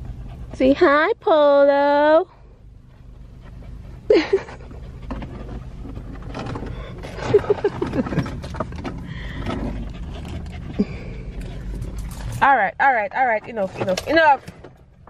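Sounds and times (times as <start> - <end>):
car engine humming: 0.0 - 15.0
dog scrambling on car seats: 5.0 - 12.7, 13.3 - 14.8.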